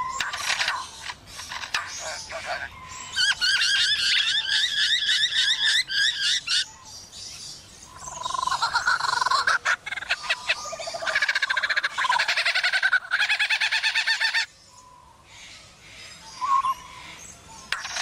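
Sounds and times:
bird sharp clicks: 0.0s - 2.2s, 17.7s - 18.0s
bird pulsed trilling: 0.0s - 6.8s, 7.8s - 15.0s, 16.3s - 18.0s.

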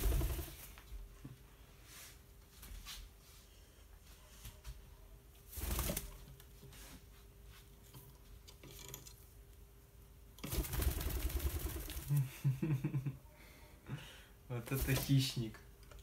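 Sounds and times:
bird wings flapping: 0.0s - 0.8s, 5.5s - 6.3s, 10.4s - 12.3s, 14.7s - 15.2s.

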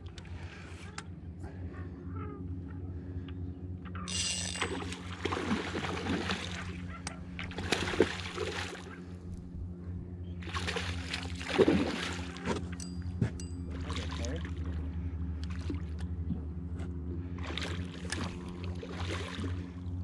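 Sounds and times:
steady low hum: 0.0s - 20.0s
fish splashing at surface: 4.6s - 6.8s.

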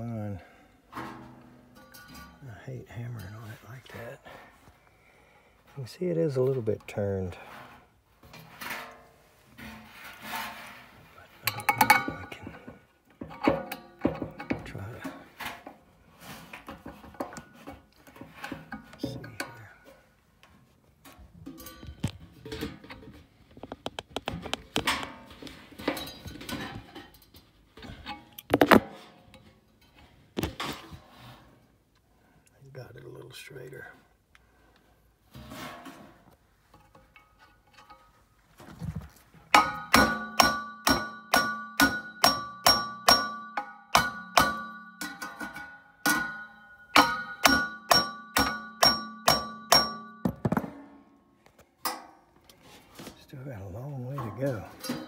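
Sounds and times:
hammer striking metal: 39.6s - 50.4s
ringing tone from metal wheel: 40.2s - 45.3s, 46.2s - 50.4s.

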